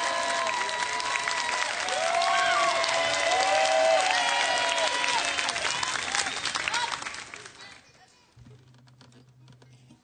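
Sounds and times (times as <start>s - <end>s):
audience applauding and cheering: 0.0s - 7.7s.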